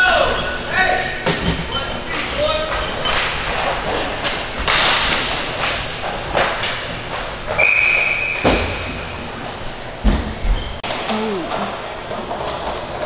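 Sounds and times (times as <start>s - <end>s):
knocks and thuds of puck and skates: 1.3s - 9.3s, 10.0s - 10.7s.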